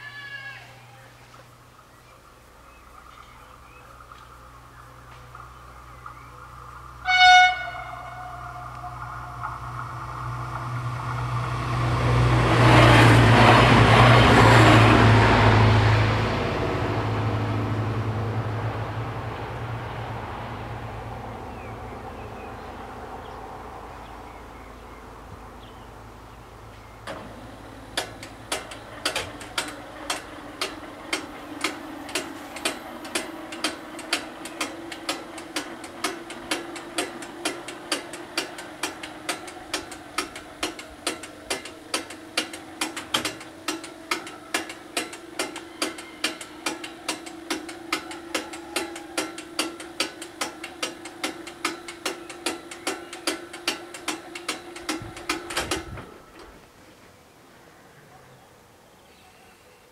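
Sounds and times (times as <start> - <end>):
train rumble: 0.0 - 57.3
steady low tone: 1.7 - 12.3.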